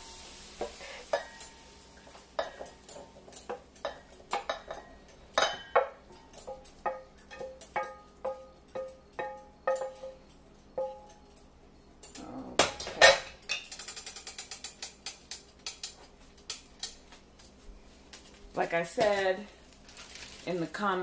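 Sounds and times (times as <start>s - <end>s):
frying pan clattering on burner: 0.0s - 11.2s, 12.6s - 17.0s
spatula tapping a steel pot: 2.4s - 11.2s.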